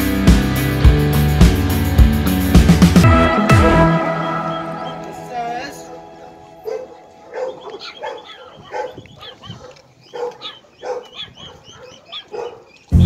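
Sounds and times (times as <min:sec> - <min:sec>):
dogs barking and yipping: 0:06.3 - 0:12.9.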